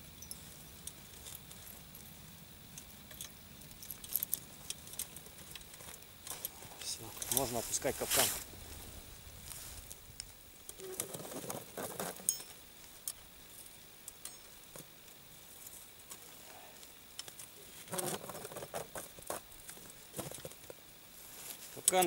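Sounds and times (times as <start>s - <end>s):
metal trap chains clinking: 11.0s - 13.2s.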